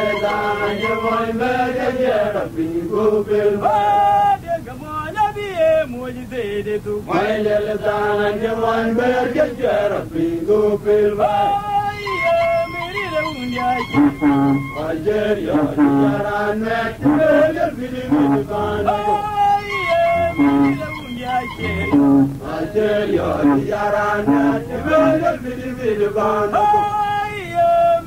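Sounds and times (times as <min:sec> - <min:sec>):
person chanting: 0:00.0 - 0:04.1, 0:11.0 - 0:28.0.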